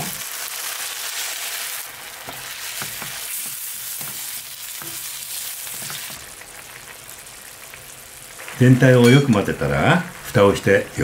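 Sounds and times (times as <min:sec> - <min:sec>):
stock sizzling in a hot frying pan: 0:00.0 - 0:11.0
spatula stirring liquid: 0:02.1 - 0:06.4.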